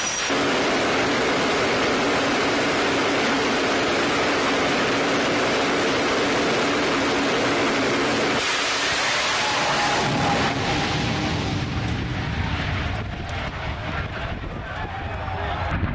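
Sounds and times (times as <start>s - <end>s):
turbine engine rushing: 0.0s - 15.9s
low hum: 0.3s - 15.9s.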